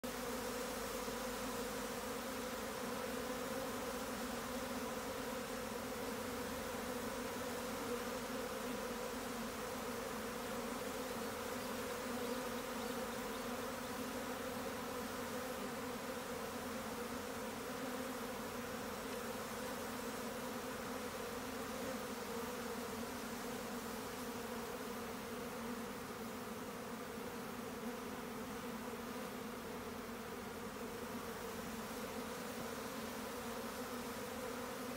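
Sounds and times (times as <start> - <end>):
bee swarm buzzing: 0.0 - 34.9.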